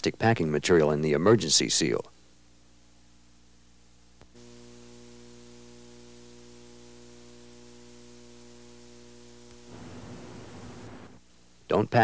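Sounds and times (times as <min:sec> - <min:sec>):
electrical mains hum: 0:00.0 - 0:12.0
hiss: 0:09.6 - 0:11.2.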